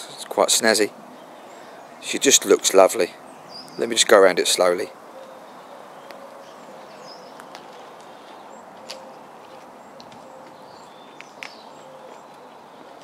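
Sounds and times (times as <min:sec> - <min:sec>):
small birds chirping: 0:00.0 - 0:13.0
footsteps on brick paving: 0:07.2 - 0:13.0.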